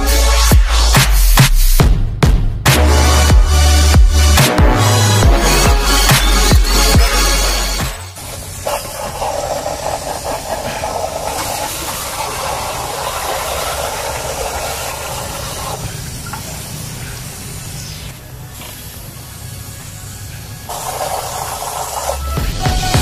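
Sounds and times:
pressurised water jet hissing: 8.0 - 22.6.

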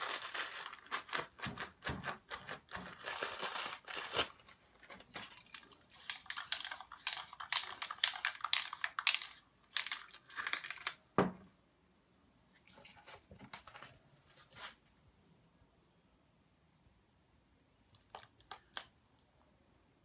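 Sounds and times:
spray paint can hissing: 5.9 - 10.2.

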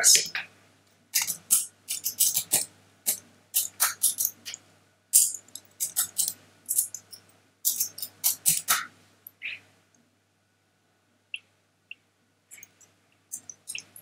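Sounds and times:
typing on computer keyboard: 7.7 - 8.9.

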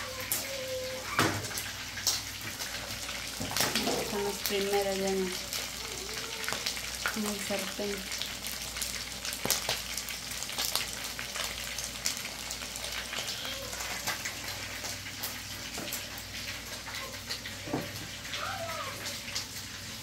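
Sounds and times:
fish frying in hot oil: 0.0 - 20.0.

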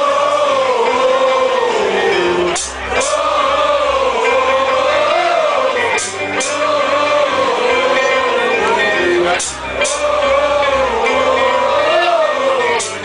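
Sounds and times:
crowd singing wordless melody: 0.0 - 13.0.

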